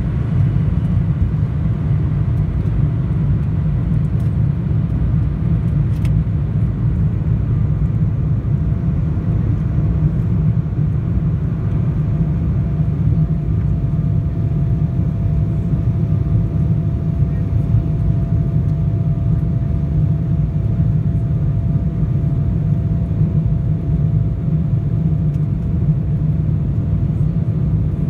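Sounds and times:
faint jet engine whine: 0.0s - 28.0s
jet engine low rumble: 0.0s - 28.0s.

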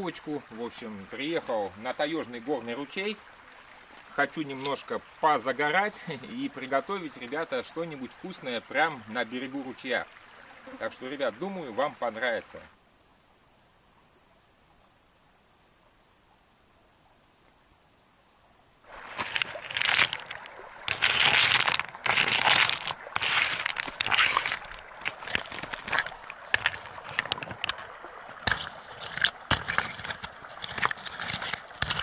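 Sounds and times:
gravel crunching: 18.9s - 32.0s
stones clacking together: 18.9s - 32.0s.

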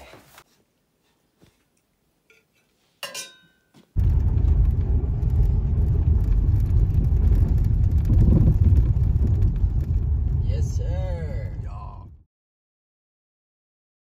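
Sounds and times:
car engine and tyre noise: 4.0s - 10.9s.

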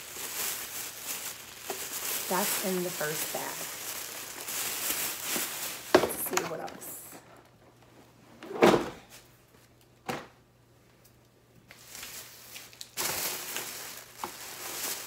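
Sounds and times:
plastic bag rustling: 0.0s - 7.4s, 11.7s - 15.0s.

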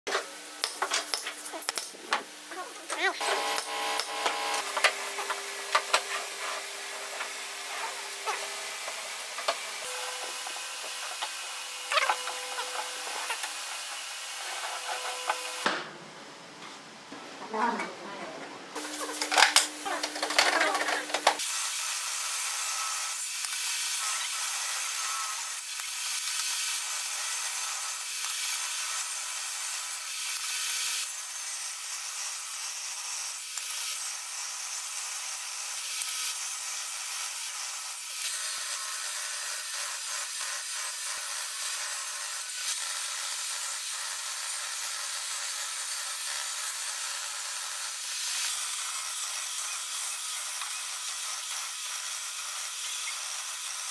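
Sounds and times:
table saw ripping boards: 3.2s - 15.9s, 18.8s - 21.5s.

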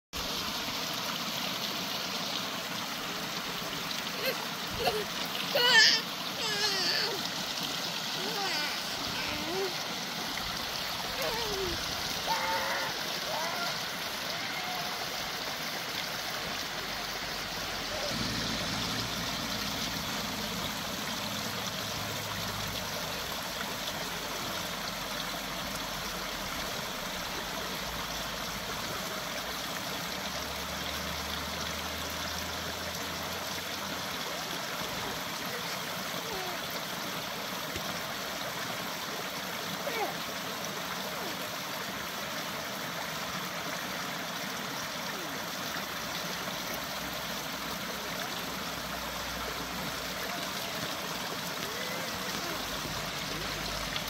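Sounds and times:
stream trickling over stones: 0.1s - 54.0s.

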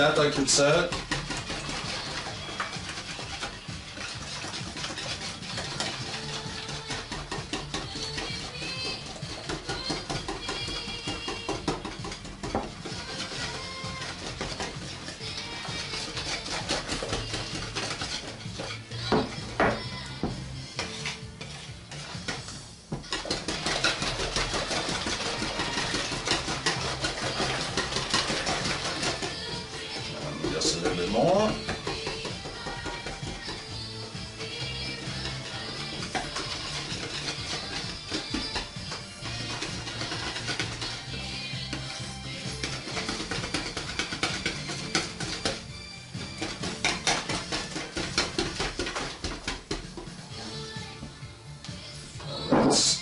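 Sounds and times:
utensil scraping plastic bowl: 0.0s - 50.7s.

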